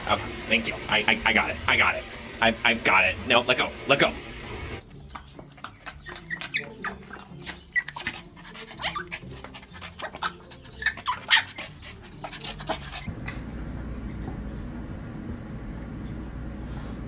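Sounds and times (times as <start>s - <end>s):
dog sniffing: 5.0s - 13.1s
small dog whining: 5.5s - 13.1s.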